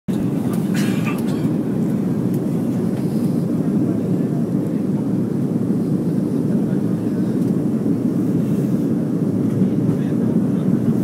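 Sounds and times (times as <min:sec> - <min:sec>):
airliner cabin rumble: 0:00.1 - 0:11.0.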